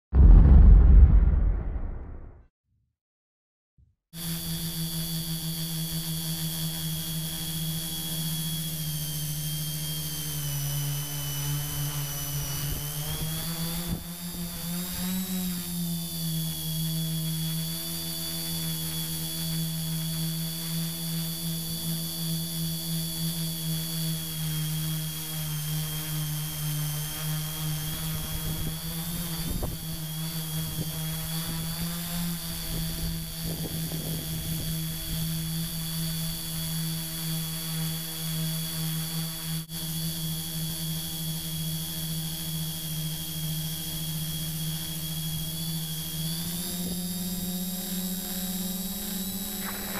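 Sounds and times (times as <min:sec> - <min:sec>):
drone motors buzzing whine: 0:04.2 - 0:49.9.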